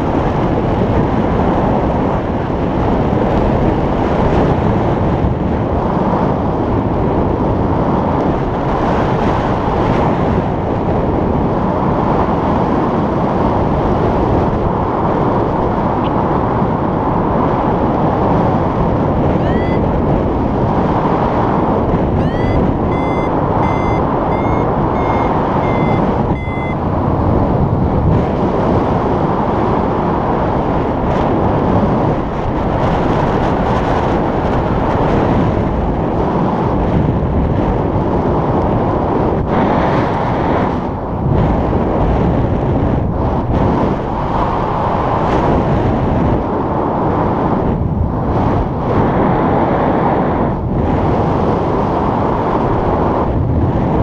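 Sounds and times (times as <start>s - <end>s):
wind roaring over microphone: 0.0s - 54.0s
variometer short high beeps: 19.4s - 19.9s, 22.2s - 26.8s.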